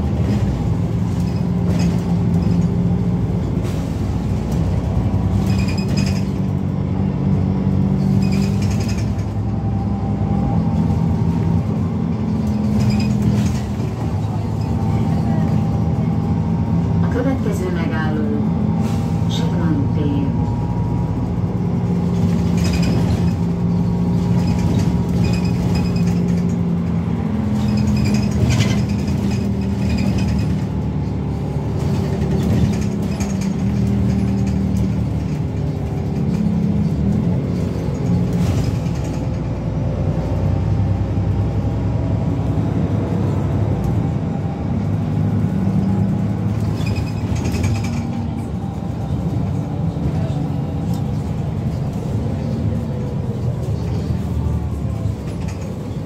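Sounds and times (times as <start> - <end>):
bus engine droning: 0.0 - 56.0
light interior rattles: 20.7 - 40.4, 44.8 - 56.0.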